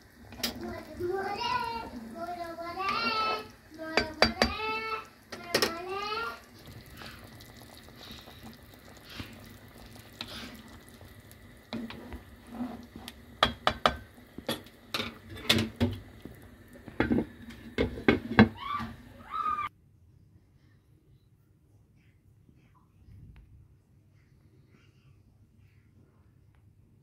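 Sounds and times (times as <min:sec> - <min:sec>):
stew simmering with faint bubbling: 0:00.0 - 0:19.7.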